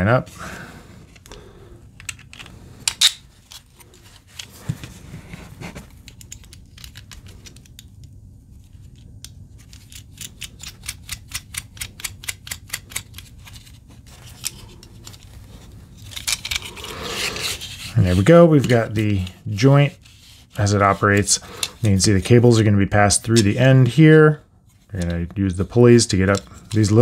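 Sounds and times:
plastic parts clicking and knocking: 2.0 - 3.2, 9.2 - 15.2.

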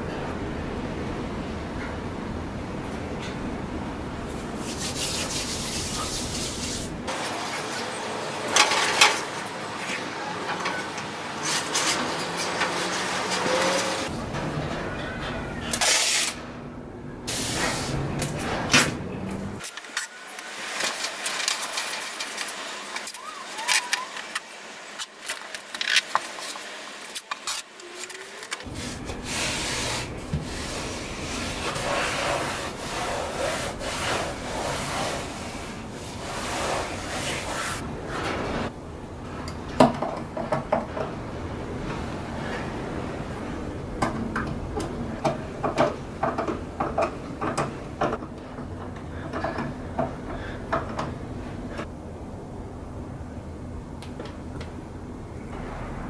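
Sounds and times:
hands rubbing paper and tape: 4.4 - 6.9.

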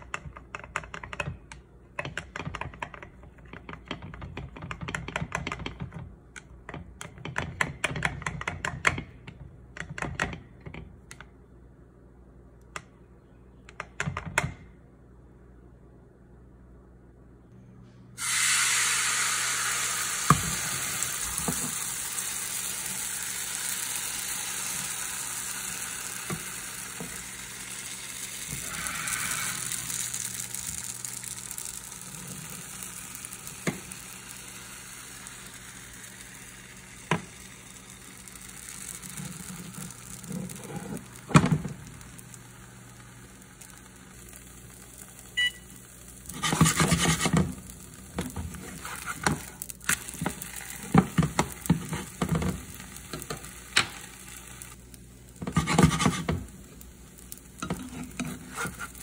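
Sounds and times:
batter sizzling in frying pan: 18.2 - 59.0.

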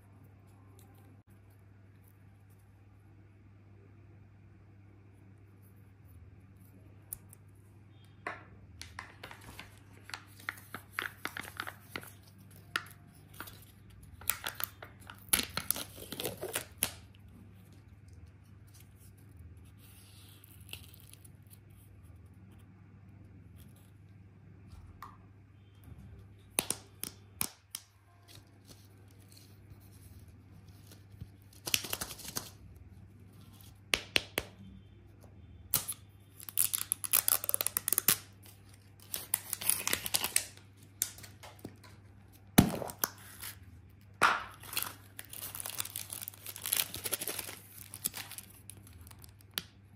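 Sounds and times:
plastic wrappers tearing and crinkling: 9.0 - 17.1, 35.8 - 41.5, 44.5 - 49.6.

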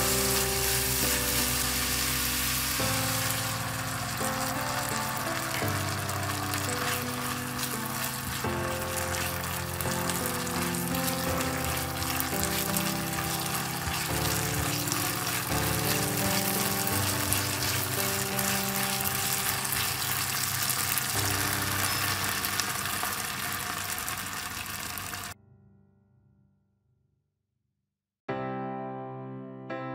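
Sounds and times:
meat sizzling in a wok: 0.0 - 25.4
piano music: 0.0 - 26.6, 28.3 - 29.9.

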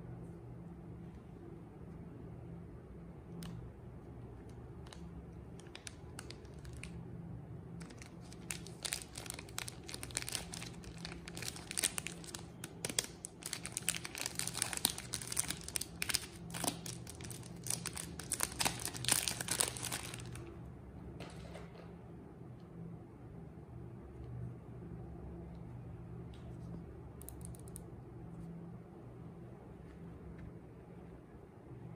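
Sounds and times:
paper wrapper crinkling and tearing: 4.8 - 7.0, 7.8 - 20.5.

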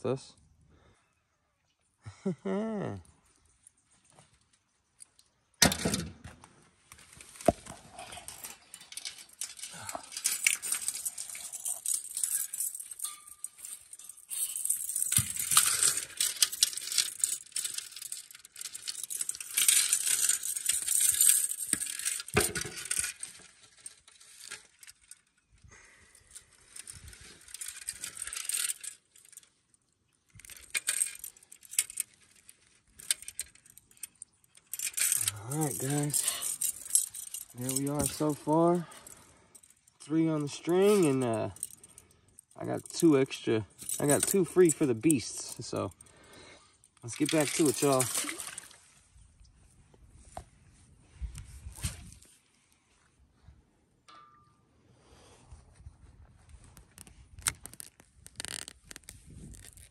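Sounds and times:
light metallic clinks: 8.0 - 25.2, 32.9 - 48.7, 54.1 - 54.6.

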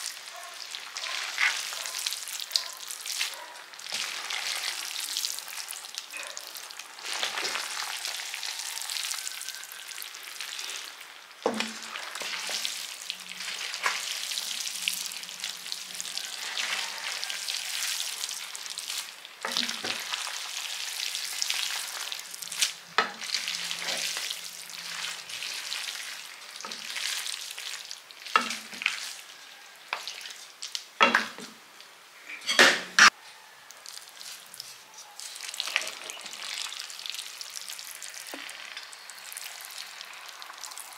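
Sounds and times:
pasta sizzling in a pan: 0.0 - 40.9
wooden spoons knocking a pan: 11.4 - 11.9, 31.0 - 31.5.

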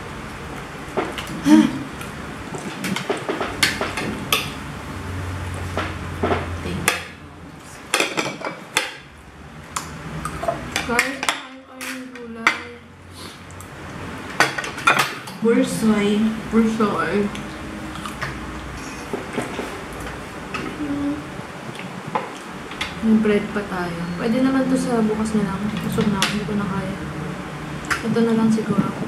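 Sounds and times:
cutlery clinking on plates: 7.9 - 9.0, 14.4 - 15.4.

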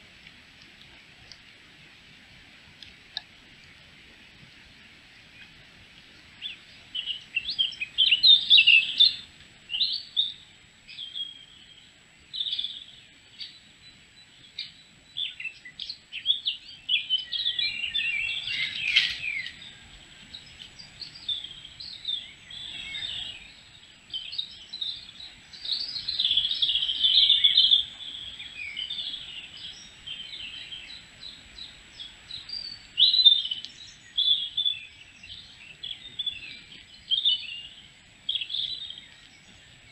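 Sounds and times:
faint steady background hiss: 0.0 - 39.9
songbirds singing and calling: 0.0 - 39.9.

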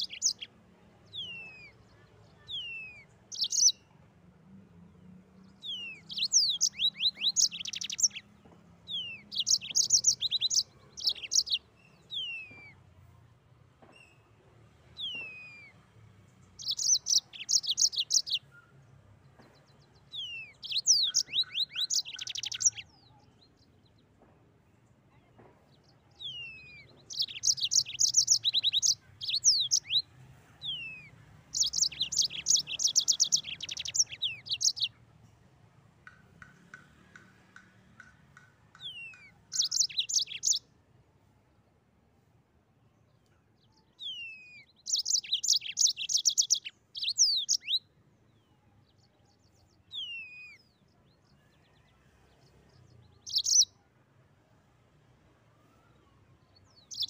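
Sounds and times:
canary singing trills and whistles: 0.0 - 0.5, 1.1 - 3.9, 5.5 - 8.3, 8.9 - 12.8, 16.5 - 18.7, 20.0 - 23.5, 26.2 - 30.0, 30.6 - 34.9, 38.8 - 40.7, 43.7 - 47.9, 48.9 - 51.2, 52.5 - 53.8, 55.7 - 57.0.

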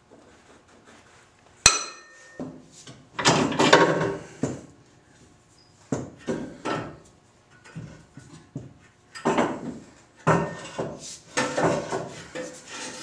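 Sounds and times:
tools scraping on concrete floor: 9.2 - 13.0.

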